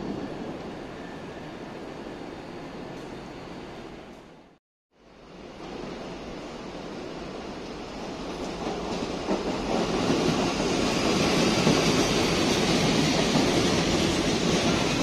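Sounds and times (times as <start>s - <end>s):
electric train approaching: 5.1s - 15.0s.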